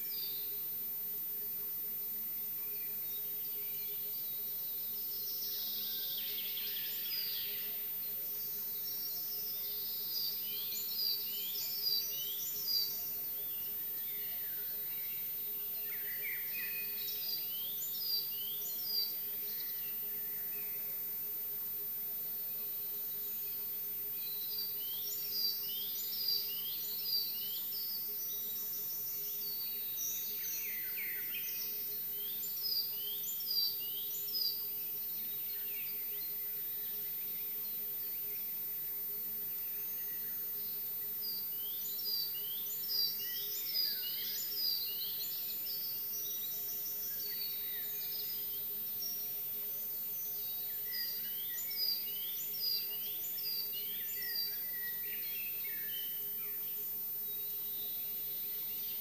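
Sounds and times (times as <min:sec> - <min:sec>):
songbirds chirping and trilling: 0:22.4 - 0:59.0.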